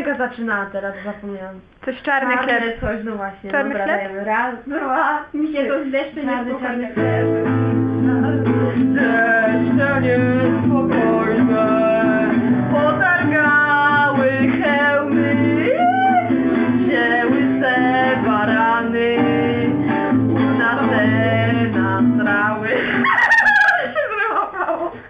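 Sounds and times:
acoustic guitar: 0:02.4 - 0:25.0
girls singing together: 0:06.0 - 0:23.7
girls laughing: 0:22.7 - 0:25.0.

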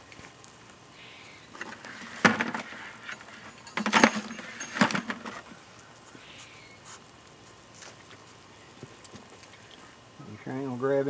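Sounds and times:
metal cooking gear clinking: 0:02.7 - 0:05.4.

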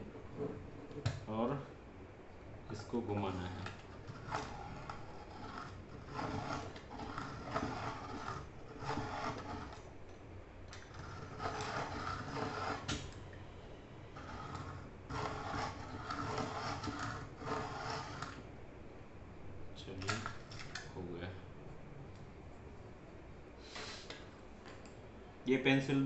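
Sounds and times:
pencil sharpener grinding: 0:03.3 - 0:09.8, 0:10.8 - 0:13.0, 0:14.2 - 0:18.4.

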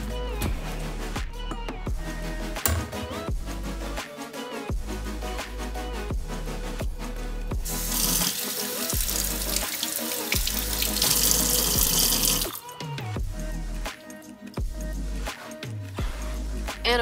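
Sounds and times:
electronic music: 0:00.0 - 0:17.0
tap water running into sink: 0:07.9 - 0:12.6.

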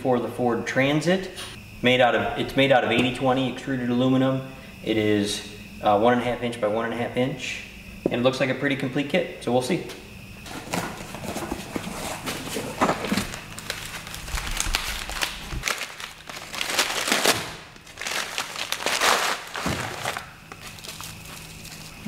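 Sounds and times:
packing paper crumpling and rustling: 0:11.1 - 0:22.0.

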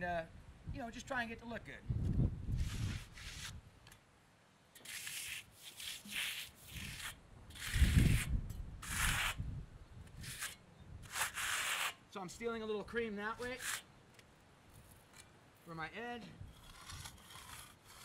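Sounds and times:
steel tool scraping wet concrete: 0:04.8 - 0:09.4, 0:10.2 - 0:12.0, 0:13.4 - 0:13.9, 0:16.5 - 0:18.0.

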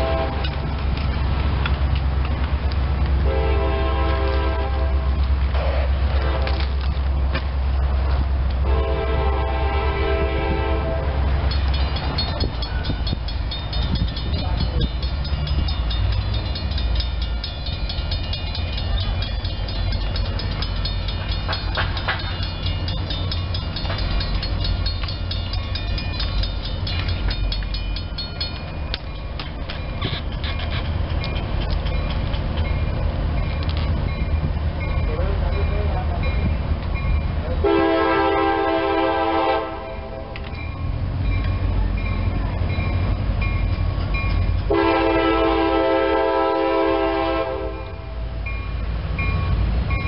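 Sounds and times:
train horn blast: 0:00.0 - 0:00.6, 0:03.2 - 0:05.3, 0:06.1 - 0:06.7, 0:08.6 - 0:11.3, 0:37.6 - 0:40.4, 0:44.7 - 0:48.3
locomotive engine rumble: 0:00.0 - 0:50.0.

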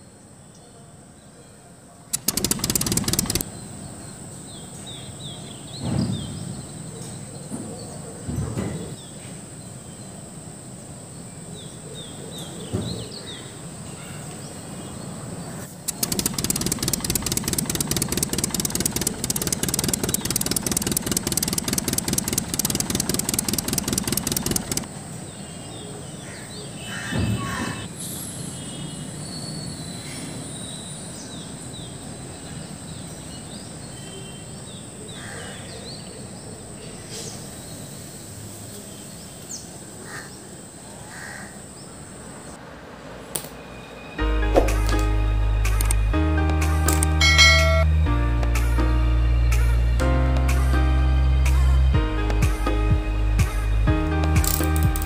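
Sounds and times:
toy motor rattling: 0:02.1 - 0:03.5, 0:15.9 - 0:24.9, 0:54.4 - 0:55.0
birds chirping: 0:15.5 - 0:26.5.

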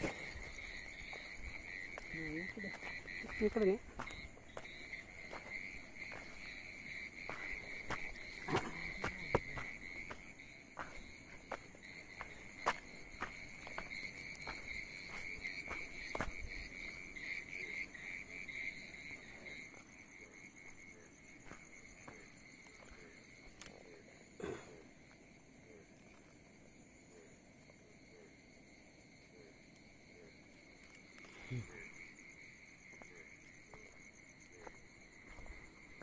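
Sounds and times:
footsteps on stony path: 0:00.0 - 0:19.9, 0:20.6 - 0:23.7, 0:32.9 - 0:36.0
crickets trilling: 0:00.0 - 0:36.0.

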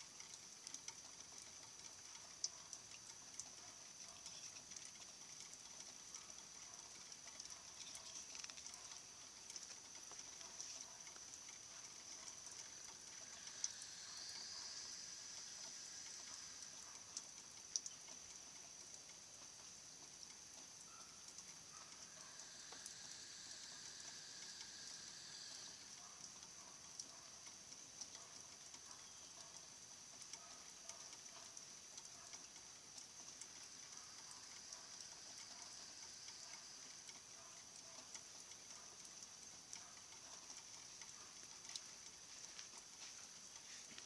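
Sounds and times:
faint chirps and ticks: 0:00.0 - 0:44.0
steady high-pitched hum: 0:22.0 - 0:26.0.

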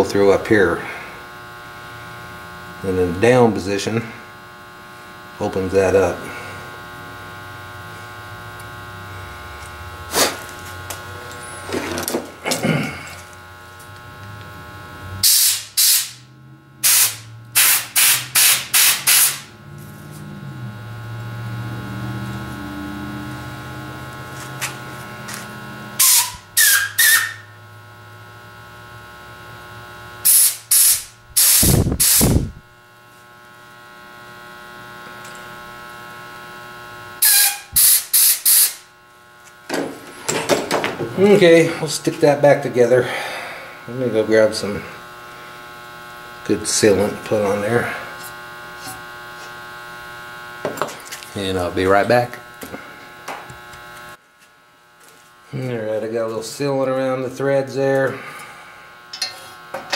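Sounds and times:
steady electrical hum: 0:00.0 - 0:59.9
air blowgun hissing blasts: 0:16.8 - 0:19.5, 0:30.3 - 0:32.6.

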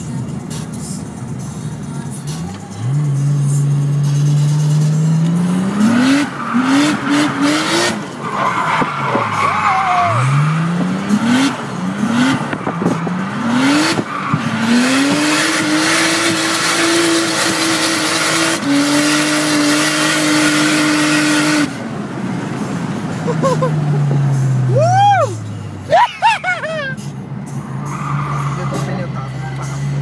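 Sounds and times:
car engine revving: 0:00.0 - 0:30.0
tyres skidding and squealing: 0:00.0 - 0:30.0.

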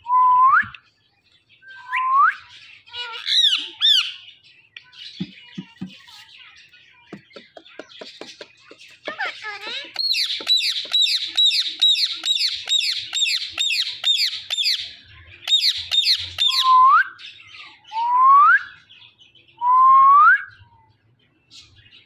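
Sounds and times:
parakeet squawks: 0:07.4 - 0:14.8.

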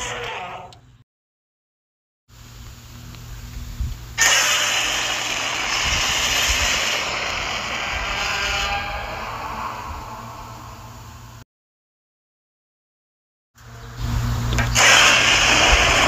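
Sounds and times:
loud harsh monster roar: 0:04.2 - 0:11.4, 0:14.8 - 0:16.0
low rumble: 0:05.2 - 0:11.4.

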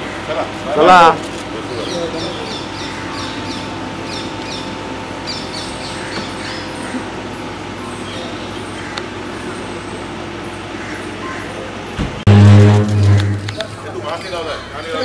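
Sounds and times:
low background rumble: 0:12.2 - 0:13.8.

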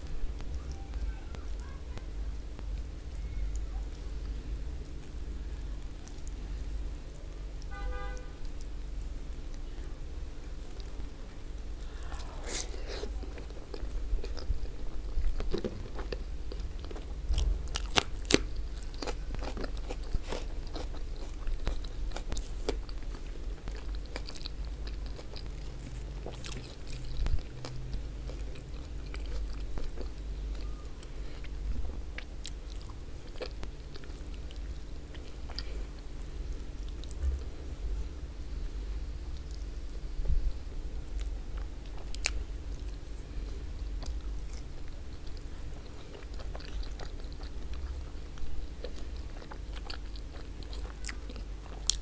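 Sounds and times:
person chewing: 0:11.7 - 0:37.6, 0:41.2 - 0:52.0.

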